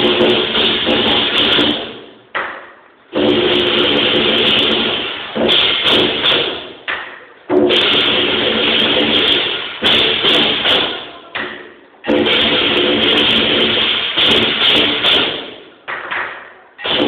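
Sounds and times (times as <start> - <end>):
drum beats: 0.0 - 17.0
crashing cymbals: 3.1 - 6.8, 7.6 - 11.2, 12.1 - 15.7.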